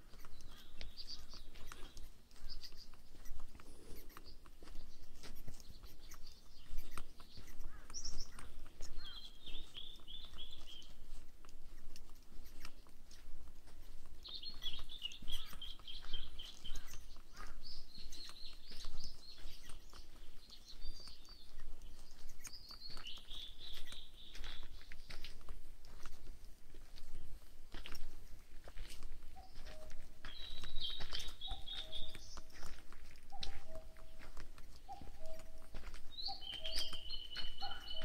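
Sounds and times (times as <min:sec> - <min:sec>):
footsteps on dirt trail: 0:00.0 - 0:38.0
songbirds singing trills: 0:00.0 - 0:38.0.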